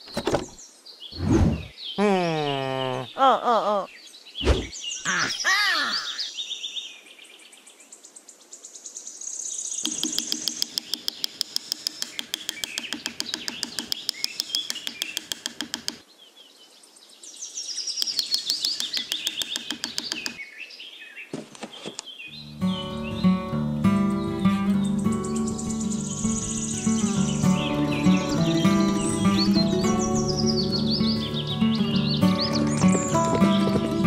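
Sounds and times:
birds chirping: 0.0 - 8.2, 8.9 - 34.0
hammer tapping wooden stake: 9.8 - 16.0, 18.0 - 20.4.

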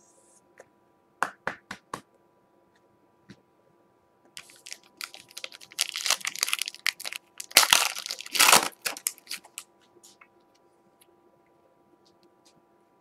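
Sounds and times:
foil wrapper crinkling: 4.4 - 9.7.

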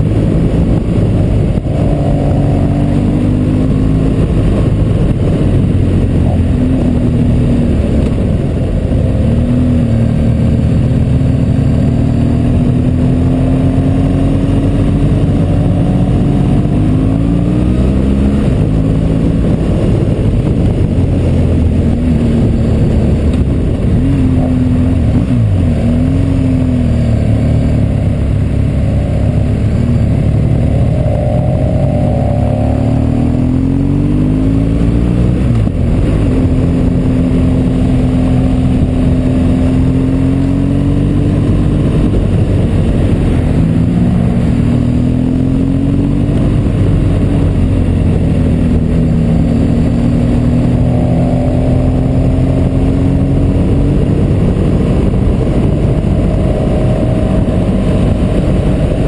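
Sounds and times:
motorcycle engine running: 0.0 - 59.0
wind rushing past: 27.8 - 59.0.

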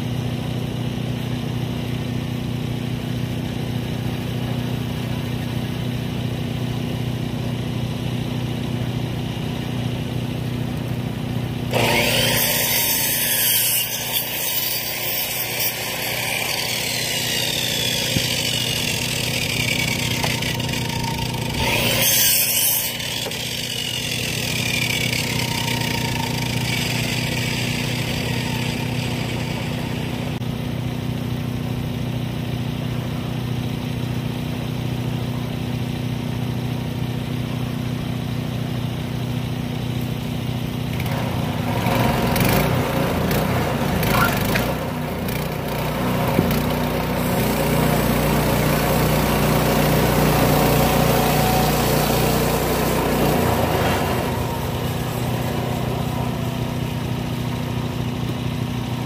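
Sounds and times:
small engine idling: 0.0 - 11.9, 15.3 - 59.0
harsh sawing noise: 11.7 - 30.4, 41.0 - 59.0.

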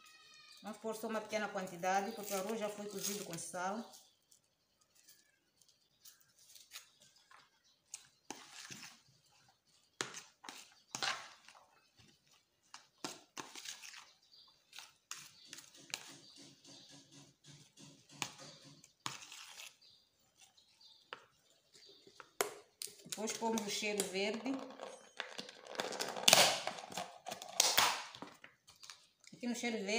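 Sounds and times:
stock cube crumbling: 24.5 - 28.1.

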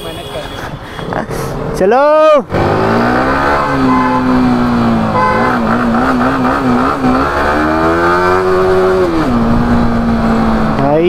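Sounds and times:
motorcycle engine revving: 2.5 - 11.0.

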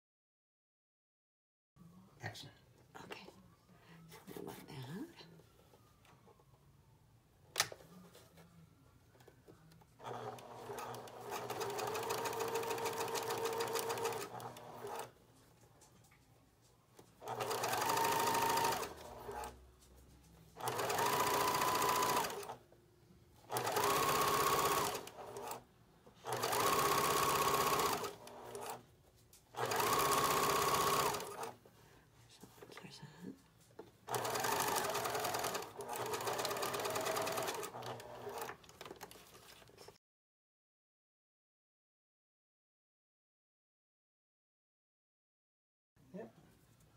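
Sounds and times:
sewing machine stitching: 10.0 - 15.1, 17.2 - 19.6, 20.6 - 22.6, 23.5 - 25.6, 26.2 - 28.8, 29.6 - 31.6, 34.1 - 39.2.

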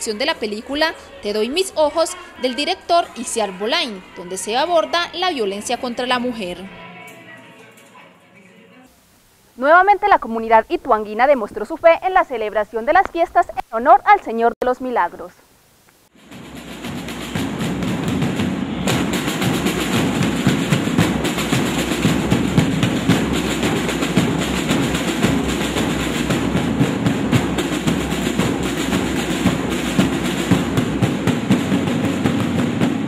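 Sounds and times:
marching band drums: 16.1 - 33.0.

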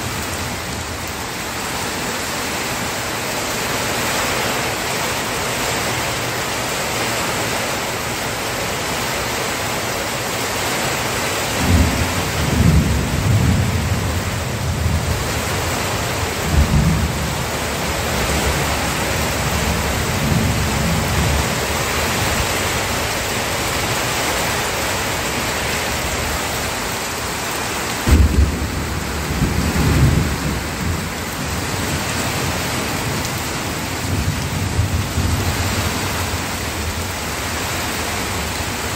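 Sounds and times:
steady rain: 0.0 - 38.9
thunder rumbling: 11.6 - 23.1, 27.8 - 37.4.

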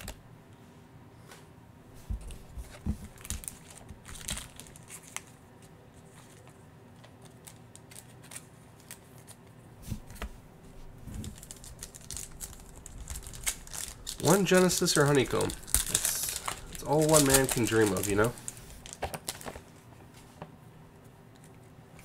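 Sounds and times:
foil wrapper crinkling: 3.1 - 5.4, 6.1 - 9.4, 11.2 - 19.7.

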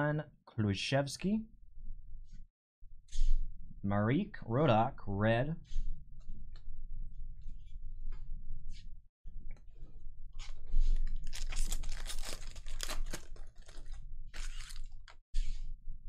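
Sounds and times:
foil wrapper crinkling: 10.4 - 15.2.

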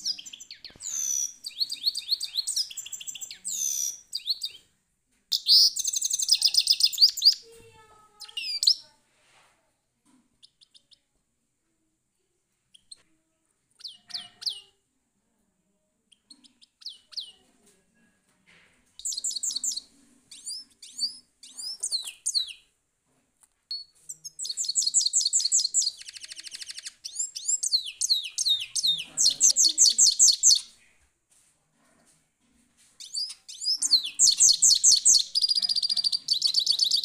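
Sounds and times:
goldfinch singing: 0.0 - 4.6, 33.0 - 37.0.

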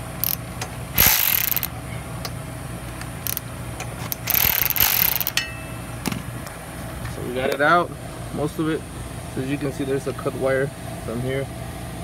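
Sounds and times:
ratchet wrench clicking: 0.2 - 1.7, 3.2 - 5.5.

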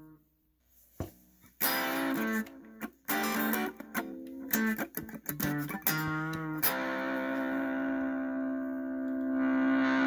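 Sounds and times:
guitar pick click: 1.6 - 7.6, 9.0 - 9.5
distorted electric guitar: 1.6 - 10.0.

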